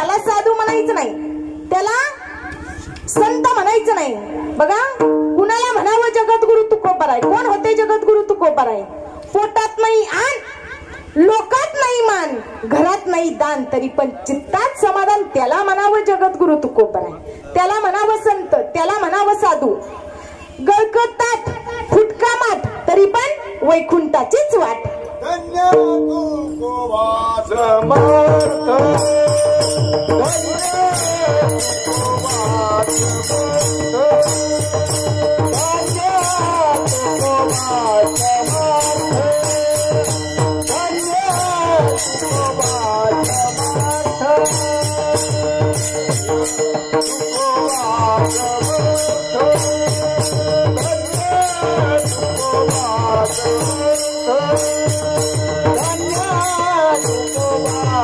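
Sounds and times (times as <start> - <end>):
hand drum beating: 2.5 - 8.1, 24.8 - 26.3, 27.8 - 58.0
steady drone: 24.8 - 56.4
small hand cymbals ringing: 24.9 - 58.0
devotional singing: 26.1 - 58.0.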